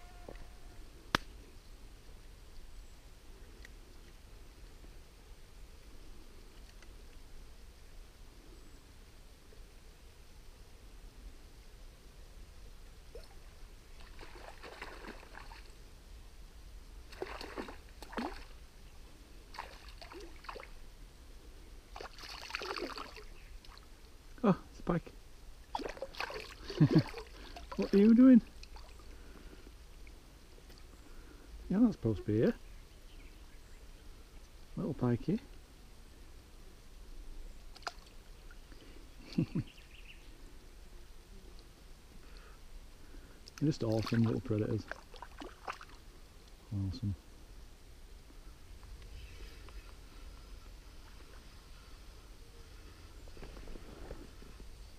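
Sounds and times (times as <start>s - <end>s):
faint water: 0.0s - 54.9s
fish splashing in water: 14.0s - 15.7s, 17.1s - 18.5s, 22.0s - 23.8s, 25.7s - 28.0s, 44.9s - 46.0s.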